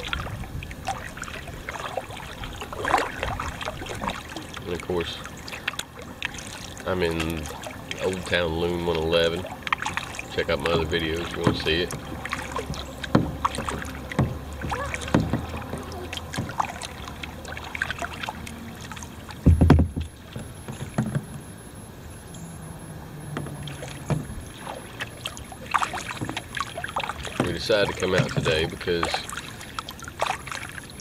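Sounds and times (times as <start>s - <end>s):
water dripping from paddle: 0.0s - 21.4s, 23.2s - 31.0s
paddle strokes through water: 0.0s - 21.8s, 22.6s - 31.0s
loud low thump: 19.4s - 21.3s.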